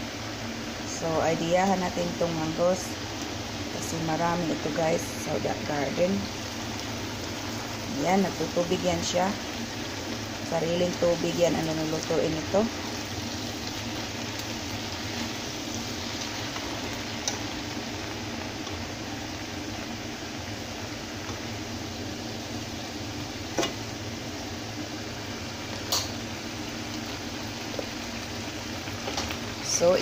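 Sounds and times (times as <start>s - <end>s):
leaves sizzling in a pan: 0.0s - 30.0s
metal utensil clicking on pan: 25.9s - 26.2s.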